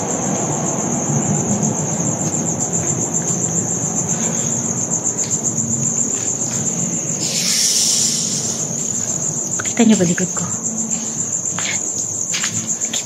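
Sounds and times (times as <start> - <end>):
crickets chirping: 0.0 - 13.0
brief hiss: 7.2 - 9.2.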